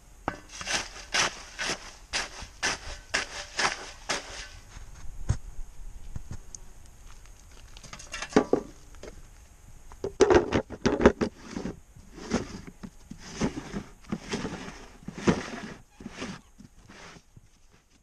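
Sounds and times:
plastic lid knocking and scraping: 10.1s - 17.2s.

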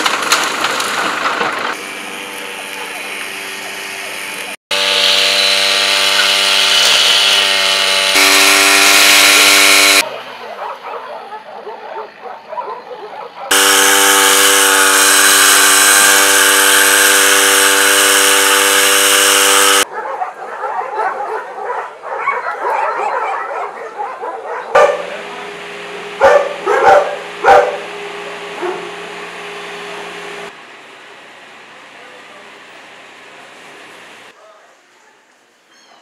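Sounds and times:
brush cutter running: 1.7s - 10.0s, 13.5s - 19.9s, 24.8s - 34.3s
dogs barking and yelping: 10.0s - 13.5s, 19.8s - 25.3s, 26.2s - 27.9s, 28.5s - 29.0s.

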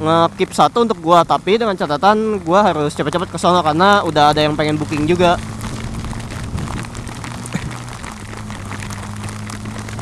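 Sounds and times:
motorcycle engine humming: 0.0s - 10.0s
rain ticking on camera: 0.0s - 10.0s
wind noise: 3.1s - 10.0s.

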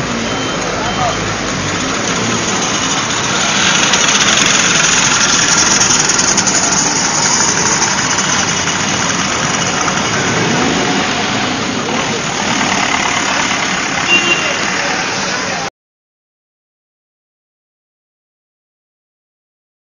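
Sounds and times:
motor scooter engines running: 0.0s - 15.7s.

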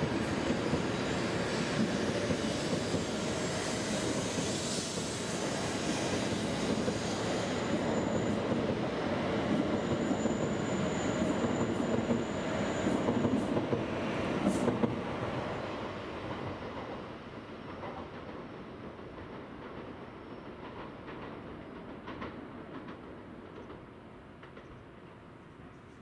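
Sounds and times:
train wheels rumbling on rails: 0.0s - 25.2s
high squeal: 0.3s - 8.6s, 9.6s - 13.5s.

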